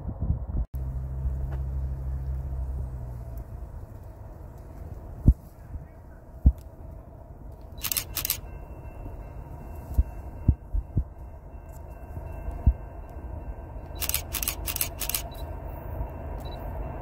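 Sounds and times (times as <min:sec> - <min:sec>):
wind rumbling on microphone: 0:00.0 - 0:08.5.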